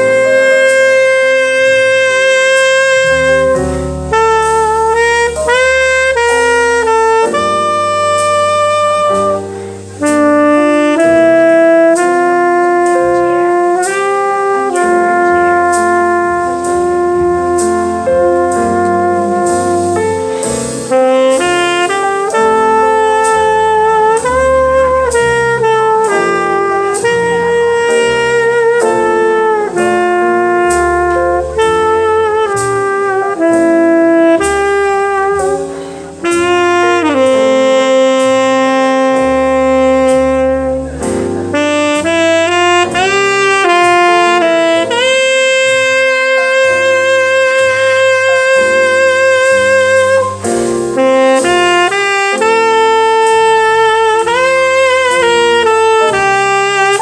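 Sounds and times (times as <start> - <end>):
backing track with piano: 0.0 - 57.0
tenor saxophone jazz ballad: 0.0 - 57.0.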